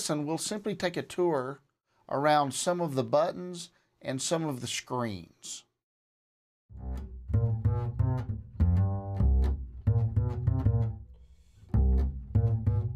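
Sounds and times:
music with deep bass notes: 0:06.7 - 0:11.1, 0:11.7 - 0:12.9.

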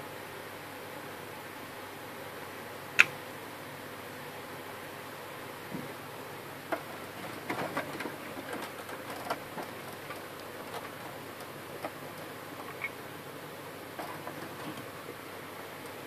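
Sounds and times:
light ticks and scrapes: 0:06.7 - 0:13.0, 0:14.0 - 0:15.0.

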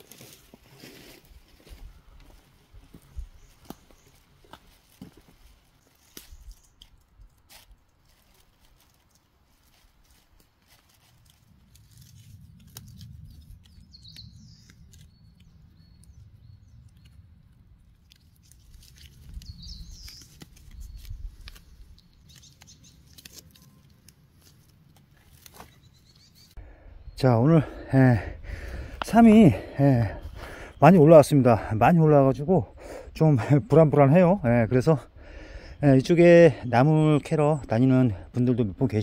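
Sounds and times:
rustling netting over leaves: 0:00.0 - 0:15.5, 0:17.9 - 0:26.5
bird chirps: 0:13.6 - 0:17.3, 0:19.3 - 0:24.0, 0:25.6 - 0:27.5.

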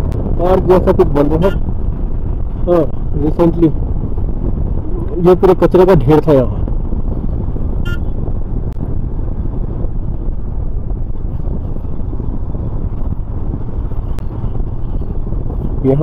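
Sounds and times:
wind on microphone: 0:00.0 - 0:16.0
motorcycle engine running: 0:06.6 - 0:16.0
short high-pitched beep: 0:07.8 - 0:08.1.

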